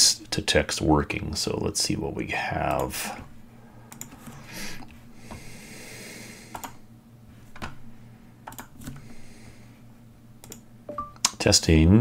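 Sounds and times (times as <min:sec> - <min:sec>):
computer mouse clicking: 0:03.9 - 0:04.4, 0:06.5 - 0:06.8, 0:08.4 - 0:09.0, 0:10.4 - 0:10.6.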